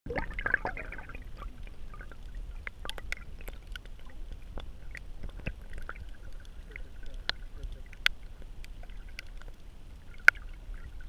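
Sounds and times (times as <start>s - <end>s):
bubbly burst: 0.1s - 2.1s
low underwater rumble: 0.1s - 11.0s
water gurgling and sloshing: 0.1s - 11.0s
small clicks and pops: 1.4s - 10.9s.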